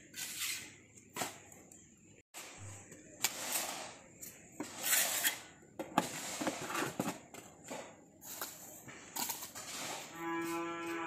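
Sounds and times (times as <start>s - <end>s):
cow mooing: 10.1s - 11.0s.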